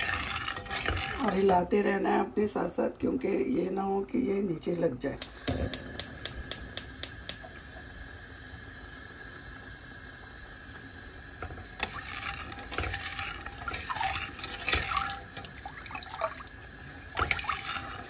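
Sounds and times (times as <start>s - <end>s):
liquid sloshing: 0.0s - 1.5s, 11.8s - 18.0s
spoon scraping a steel pot: 0.0s - 1.5s, 11.8s - 16.5s, 17.2s - 18.0s.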